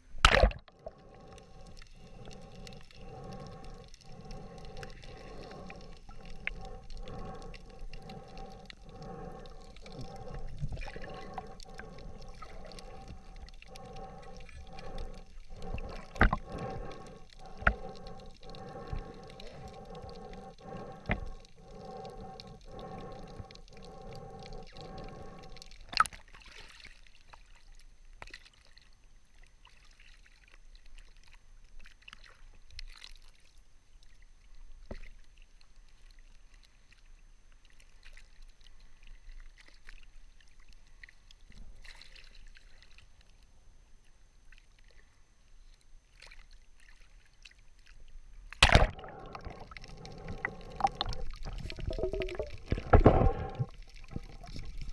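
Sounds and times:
water lapping and sloshing: 0:00.0 - 0:54.9
loud splash: 0:48.6 - 0:49.0
muffled underwater pulsing: 0:48.6 - 0:54.9.

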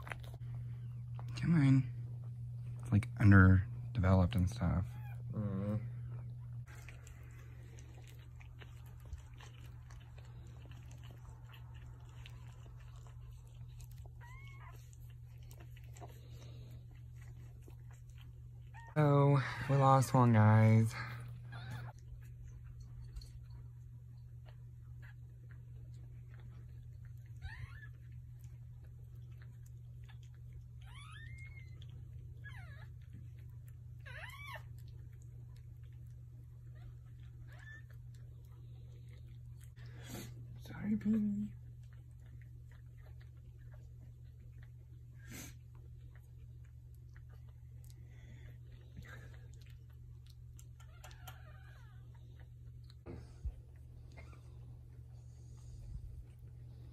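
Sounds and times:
steady low hum: 0:00.0 - 0:56.9
dog whimpering: 0:04.6 - 0:07.2, 0:08.8 - 0:16.6, 0:18.6 - 0:22.3, 0:27.2 - 0:28.5, 0:30.0 - 0:35.2, 0:36.7 - 0:39.1, 0:48.0 - 0:53.4
puppy squeaking: 0:04.8 - 0:05.4, 0:13.6 - 0:16.0, 0:21.0 - 0:22.0, 0:27.3 - 0:28.2, 0:30.8 - 0:33.1, 0:34.0 - 0:35.0, 0:36.7 - 0:38.2, 0:50.6 - 0:52.5.

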